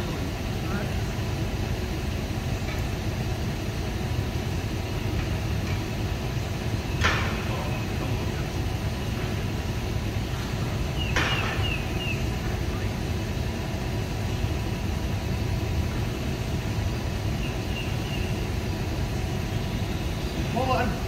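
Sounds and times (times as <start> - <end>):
sharp knocks on metal: 11.1 - 11.6.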